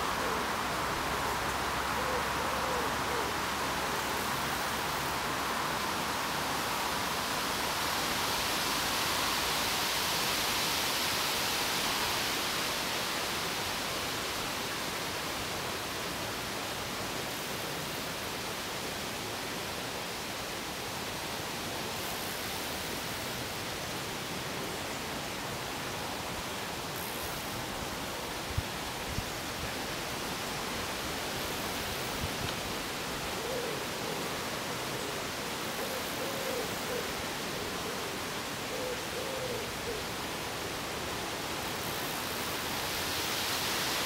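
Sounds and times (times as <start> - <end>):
steady rushing outdoor noise: 0.0 - 44.0.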